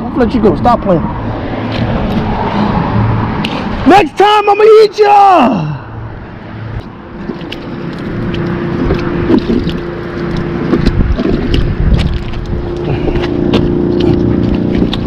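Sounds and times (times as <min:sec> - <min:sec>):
engine running: 0:05.8 - 0:15.0
wind on microphone: 0:06.6 - 0:15.0.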